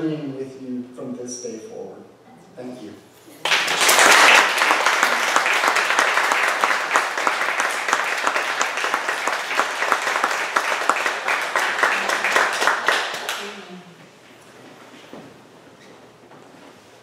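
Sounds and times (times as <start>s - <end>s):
audience applauding: 3.4s - 13.6s.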